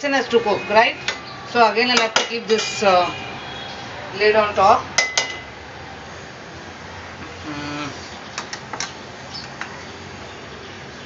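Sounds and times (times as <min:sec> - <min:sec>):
metal spatula scraping pan: 0:01.9 - 0:03.1.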